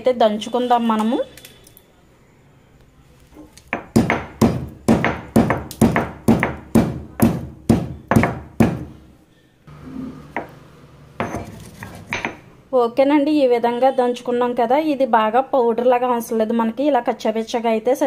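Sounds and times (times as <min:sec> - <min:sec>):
stone pestle pounding in mortar: 0:03.7 - 0:08.9.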